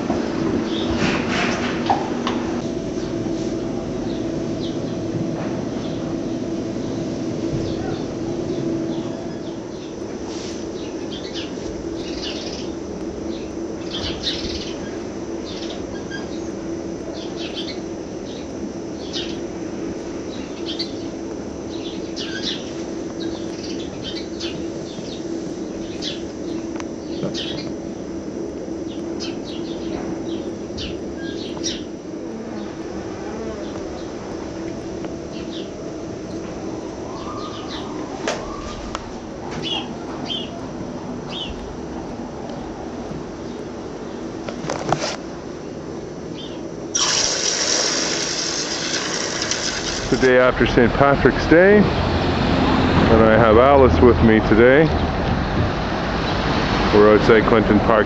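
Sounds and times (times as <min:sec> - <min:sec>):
steady hum: 0:00.0 - 0:58.0
small birds chirping: 0:05.7 - 0:19.5, 0:20.2 - 0:34.4, 0:35.1 - 0:39.0, 0:39.6 - 0:40.7, 0:41.3 - 0:41.7, 0:45.6 - 0:46.7.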